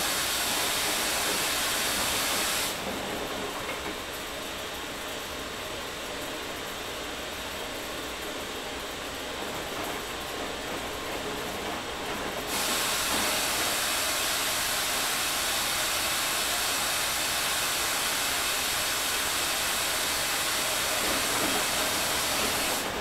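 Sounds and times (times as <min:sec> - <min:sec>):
water rushing in hiss: 0:00.0 - 0:02.8, 0:12.5 - 0:22.9.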